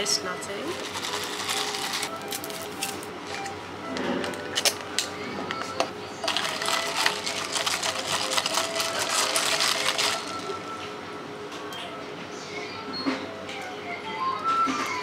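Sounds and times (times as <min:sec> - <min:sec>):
ice cubes rattling in plastic cup: 0:00.7 - 0:03.1, 0:06.2 - 0:10.6.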